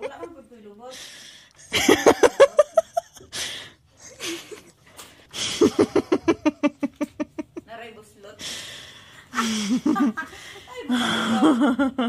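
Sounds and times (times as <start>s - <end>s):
woman laughing: 0.0s - 0.4s, 1.7s - 3.3s, 4.0s - 4.7s, 5.4s - 7.7s, 9.3s - 12.0s.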